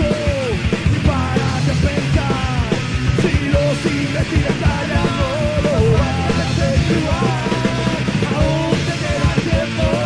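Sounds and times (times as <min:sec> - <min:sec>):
distorted guitar and bass: 0:00.0 - 0:10.0
fast drum hits: 0:00.8 - 0:10.0
shouted vocals: 0:04.8 - 0:10.0.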